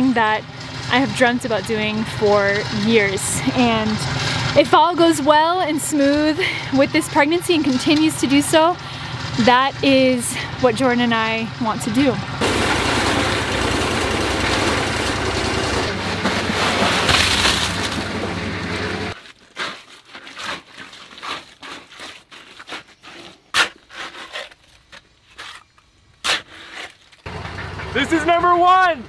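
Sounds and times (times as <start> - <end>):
cement mixer running: 0.1 - 19.2, 27.2 - 29.0
wet concrete being shovelled: 15.7 - 18.4, 19.1 - 27.3.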